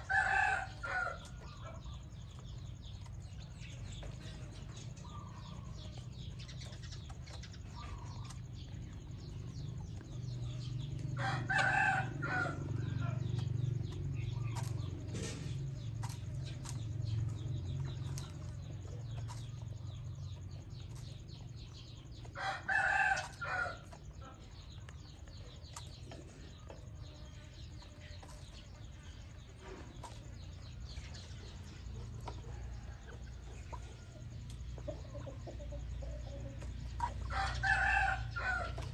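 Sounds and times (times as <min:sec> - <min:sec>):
chickens clucking: 0:00.0 - 0:38.9
rooster crowing: 0:11.2 - 0:13.2, 0:37.3 - 0:38.9.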